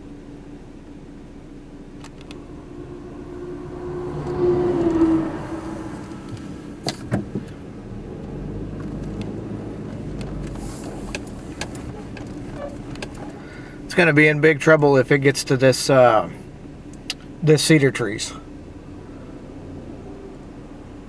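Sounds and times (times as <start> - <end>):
vehicle engine: 0.0 - 21.0
low rumble: 2.0 - 8.0.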